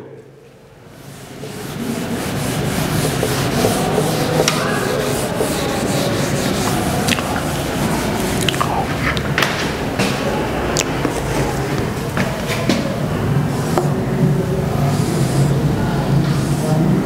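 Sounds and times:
eraser rubbing on whiteboard: 0.9 - 9.6.

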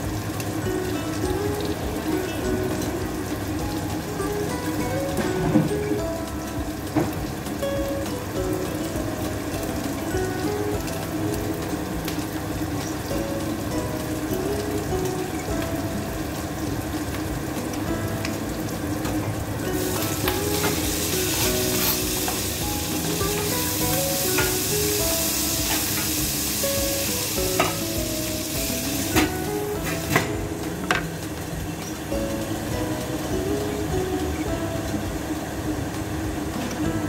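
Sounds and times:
food sizzling in a pot: 0.0 - 37.0.

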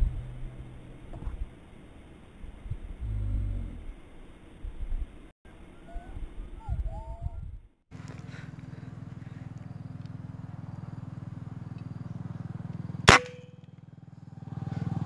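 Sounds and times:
steady low hum: 0.0 - 15.0
air rifle shot: 13.1 - 13.6.

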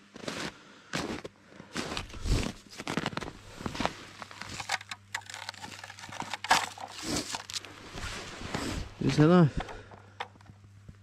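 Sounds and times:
boots crunching through snow: 0.1 - 4.6.

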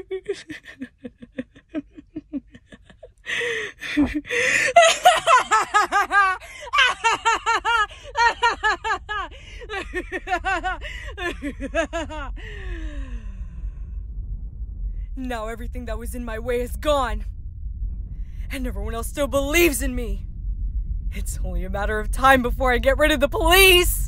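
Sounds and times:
woman doing villain laugh: 0.0 - 12.5.

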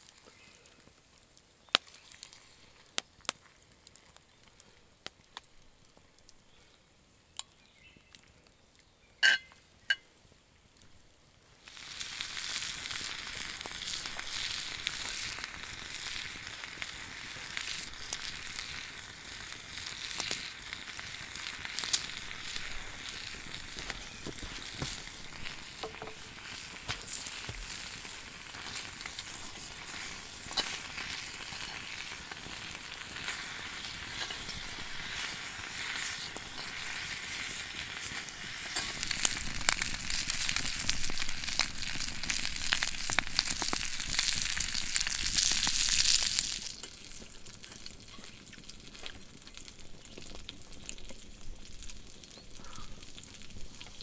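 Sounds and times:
small pops and crackles: 0.0 - 54.0
food sizzling in a pan: 11.6 - 54.0.

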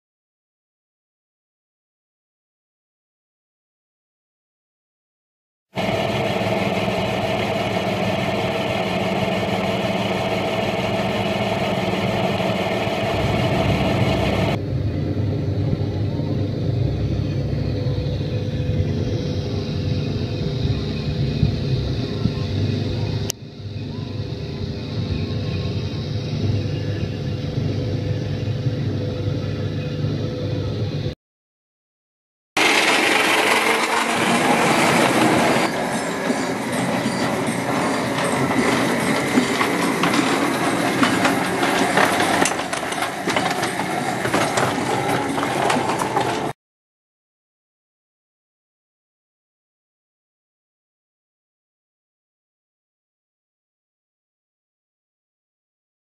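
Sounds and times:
metal lathe motor hum: 5.8 - 14.6, 32.6 - 46.5
miniature train rolling on track: 5.8 - 14.6, 32.6 - 46.6
wheels clicking on rails: 5.8 - 14.6, 32.6 - 46.6.

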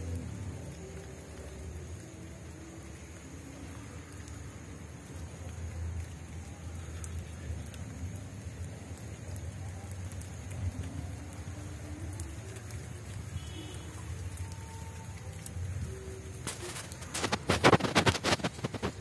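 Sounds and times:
steady rain: 0.0 - 19.0.

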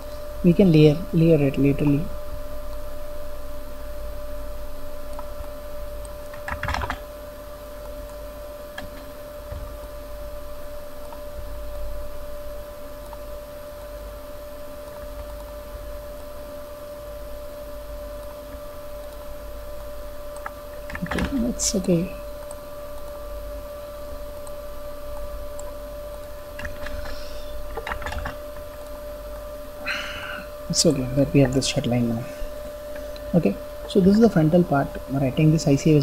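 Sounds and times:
steady electrical hum: 0.0 - 36.0
computer mouse and keyboard clicks: 5.1 - 7.0, 20.3 - 21.5, 25.2 - 29.0.

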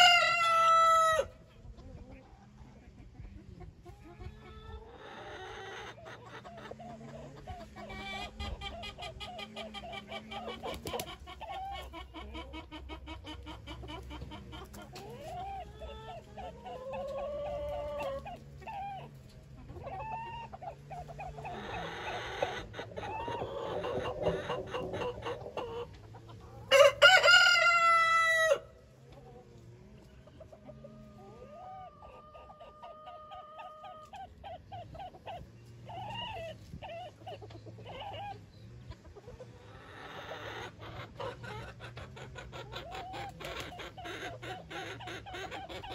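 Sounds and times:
rooster crowing: 0.0 - 1.3, 26.7 - 28.7
chickens clucking: 0.0 - 45.9.

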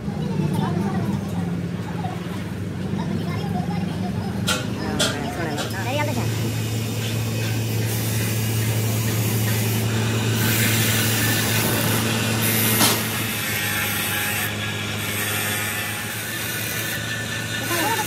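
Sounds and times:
tool rubbing on metal: 6.2 - 18.0.

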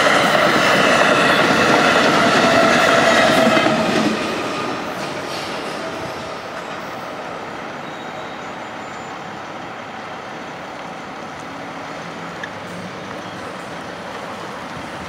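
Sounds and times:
passing train rumble: 0.0 - 15.0
cars and trucks driving: 4.6 - 15.0.

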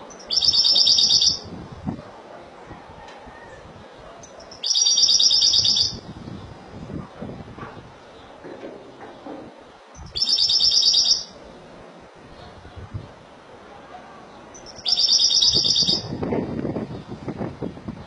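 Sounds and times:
goldfinch trilled song: 14.6 - 16.1.

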